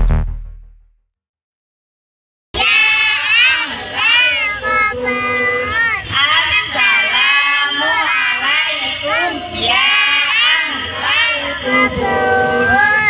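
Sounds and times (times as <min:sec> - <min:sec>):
children and women singing: 0:02.6 - 0:13.0.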